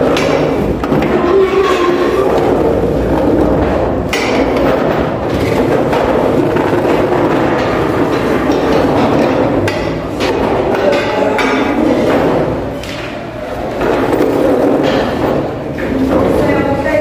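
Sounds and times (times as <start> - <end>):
sharp knocks: 0.0 - 13.1.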